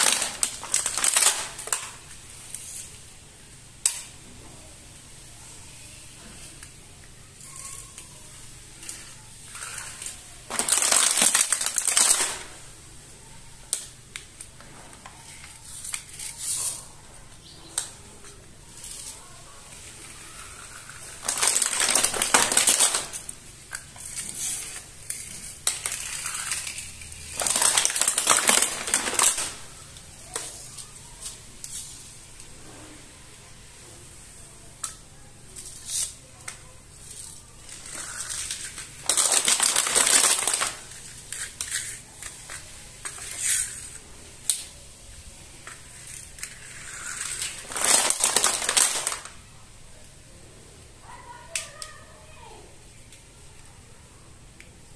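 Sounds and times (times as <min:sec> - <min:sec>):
plastic packaging crinkling: 0:00.0 - 0:03.1, 0:07.4 - 0:32.2, 0:34.9 - 0:49.5.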